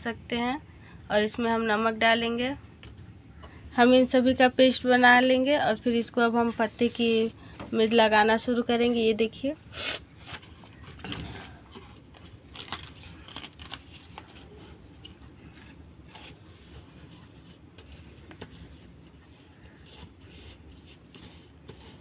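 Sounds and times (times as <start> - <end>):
paste rubbing on leaf: 14.4 - 22.0.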